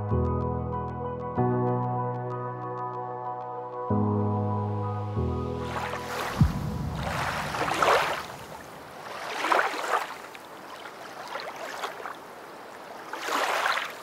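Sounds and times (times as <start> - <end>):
sea waves washing onto shore: 5.6 - 14.0.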